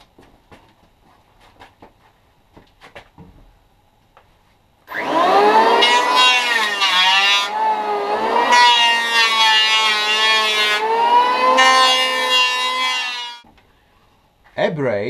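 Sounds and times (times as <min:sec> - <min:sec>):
electric plane cutting wood: 0:04.9 - 0:13.4.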